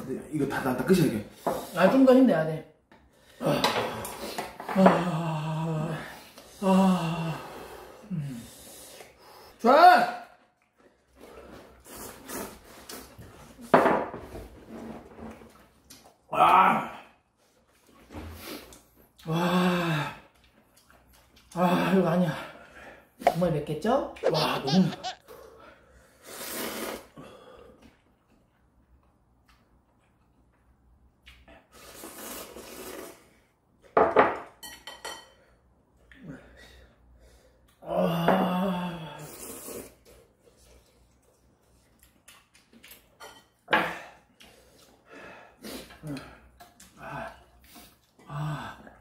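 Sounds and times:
noodles being slurped: 26.2 - 27.2.

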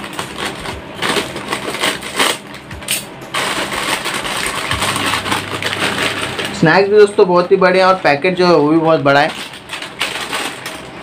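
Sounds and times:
scissors snipping packet: 0.0 - 7.1
corn puffs rustling out: 0.0 - 11.0
snack packet crinkling: 0.0 - 11.0.

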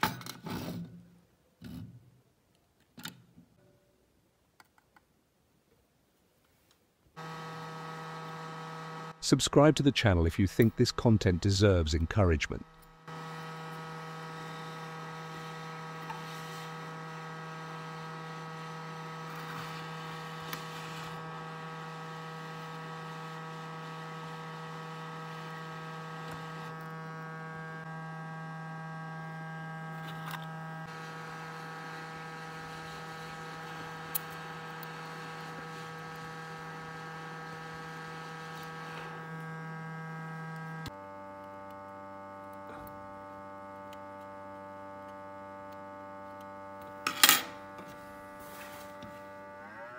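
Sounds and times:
hot-air fan humming: 29.4 - 41.0.

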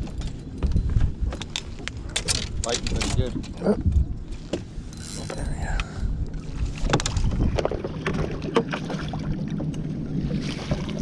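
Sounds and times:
knocks and clicks of fishing gear: 0.0 - 5.9, 6.8 - 8.8
water noise: 0.0 - 11.0
wind: 0.0 - 11.0.

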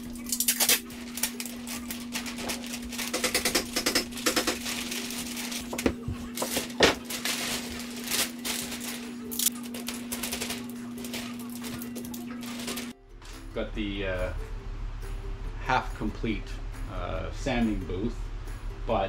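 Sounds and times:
plastic sheeting crinkling: 0.0 - 13.0.

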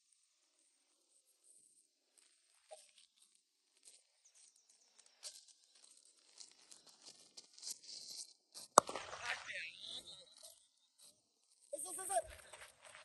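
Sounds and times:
faint high chirps: 2.6 - 3.4.

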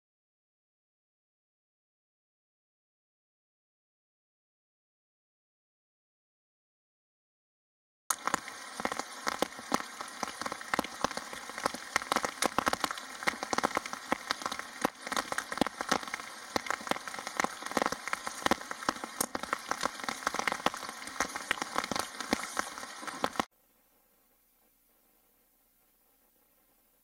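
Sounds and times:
rain pattering: 8.1 - 23.5.

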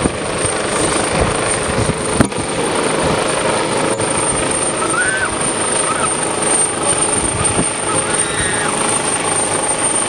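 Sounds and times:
helicopter rotor noise: 0.0 - 10.0
surf rushing: 4.7 - 8.8.

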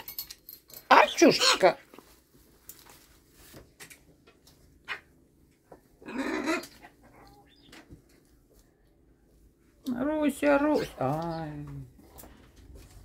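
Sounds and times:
parrot squawk: 6.0 - 6.9.

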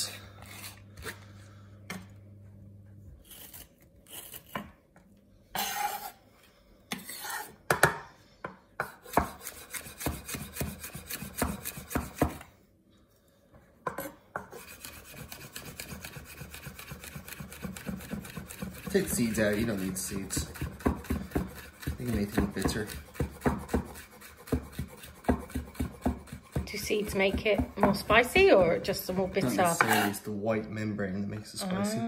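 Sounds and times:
knife blade scraping: 6.9 - 7.6, 8.9 - 12.0, 14.5 - 19.7, 20.6 - 26.6, 29.4 - 30.3
knife chopping on wooden board: 7.7 - 12.5, 13.9 - 30.1.

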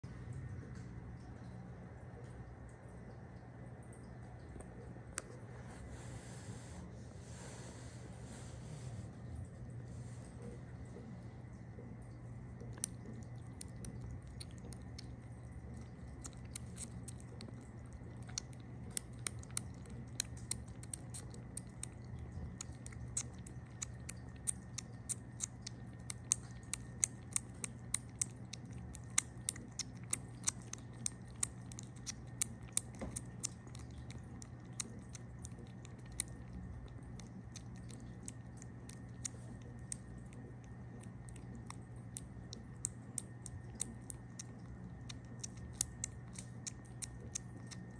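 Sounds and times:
low steady hum: 0.0 - 47.9
kitten sucking from bottle: 11.8 - 47.9.

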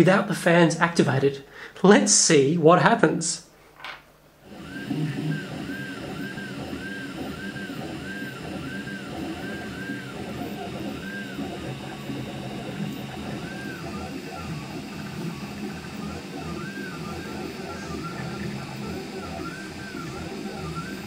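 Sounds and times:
stepper motors whining: 4.4 - 21.0.

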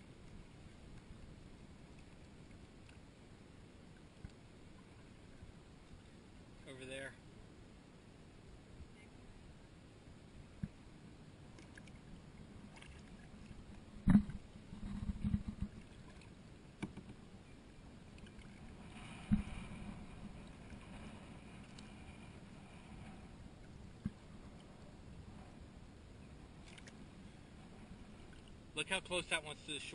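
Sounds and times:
kayak paddle dipping and dripping: 11.4 - 20.9, 26.5 - 27.3, 28.0 - 28.8.

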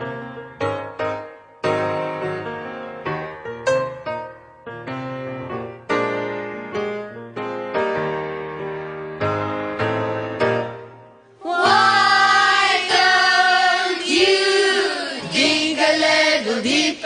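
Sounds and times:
piano chords: 0.0 - 16.4
women singing worship song: 11.4 - 17.0.

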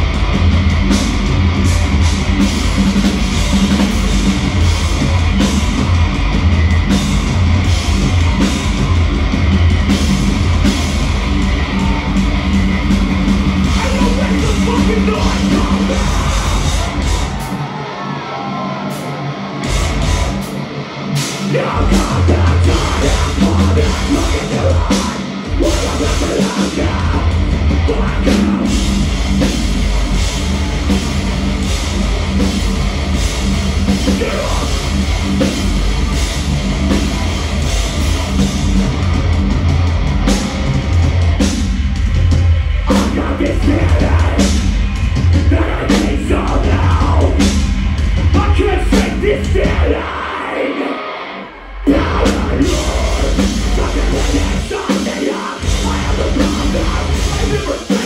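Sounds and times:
metalcore band playing live: 0.0 - 58.0.

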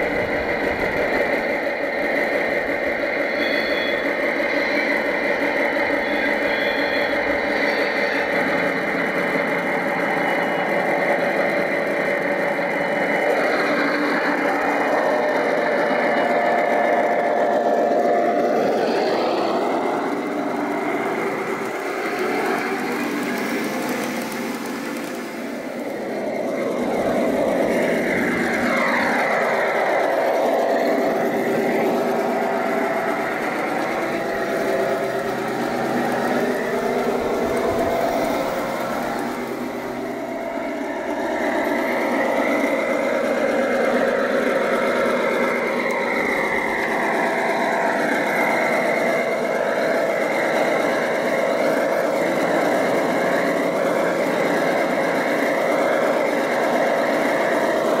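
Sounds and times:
model train diesel engine hum: 0.0 - 58.0.

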